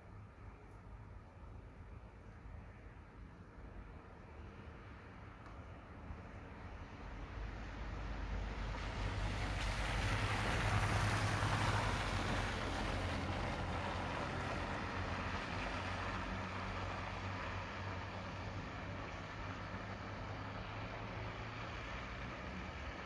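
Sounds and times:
tyre hiss on wet road: 7.3 - 23.0.

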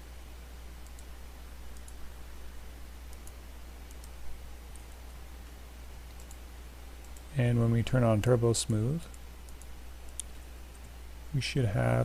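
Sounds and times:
low hum and hiss: 0.0 - 12.0
computer mouse clicks: 0.8 - 1.1, 1.7 - 2.0, 3.1 - 5.2, 6.0 - 6.4, 7.0 - 7.3, 8.7 - 11.0.

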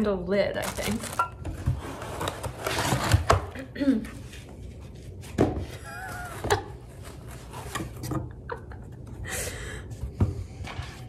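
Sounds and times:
cardboard and foam packaging handling: 0.6 - 8.3.

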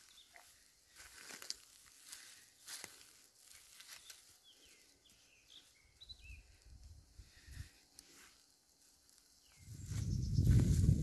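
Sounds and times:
faint bird chirps: 0.0 - 1.2, 3.4 - 7.8, 9.4 - 11.0
footsteps crunching on forest path: 0.0 - 6.3, 7.3 - 11.0.

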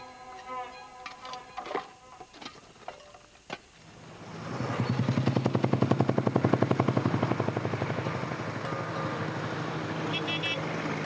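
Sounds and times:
vehicle engine pulsing: 3.8 - 11.0.

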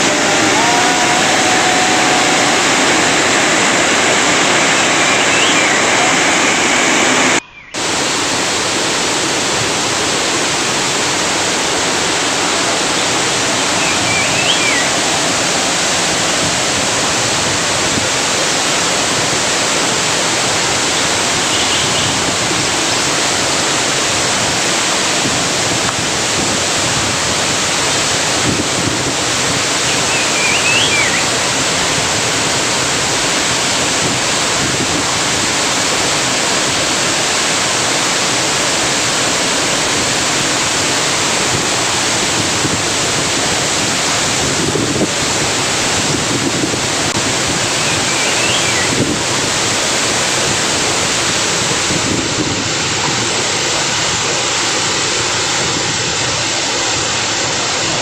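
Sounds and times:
waterfall rushing: 0.0 - 58.0
high chirps: 4.4 - 7.8, 13.8 - 15.0, 29.9 - 31.3, 47.8 - 49.0.

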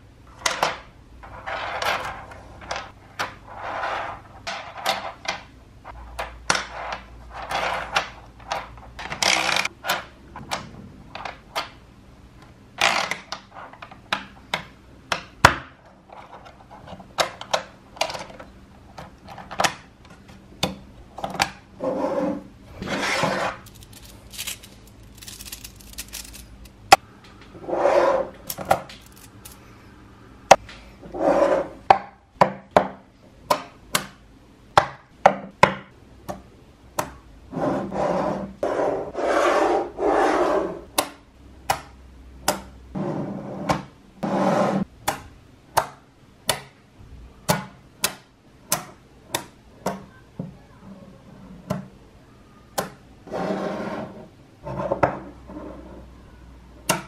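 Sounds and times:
magnetic balls rattling on tabletop: 23.4 - 26.8, 28.4 - 29.6.

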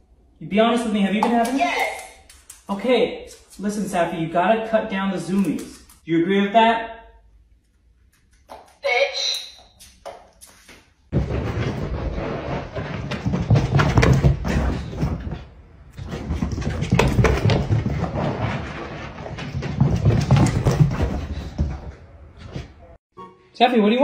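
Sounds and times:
dog running feet thumps: 11.1 - 22.8.

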